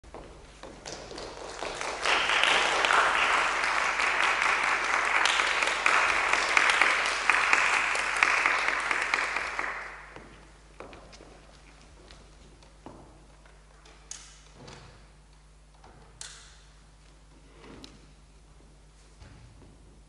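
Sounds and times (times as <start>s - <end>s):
audience applauding: 0.9s - 10.2s.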